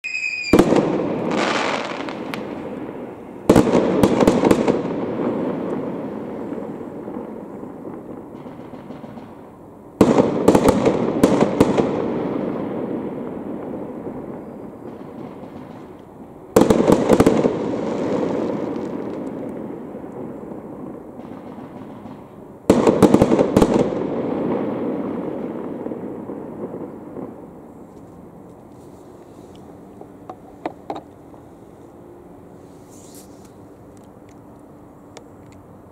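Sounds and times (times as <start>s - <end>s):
sharp firework cracks: 0.0s - 27.7s
fireworks exploding: 0.0s - 31.2s.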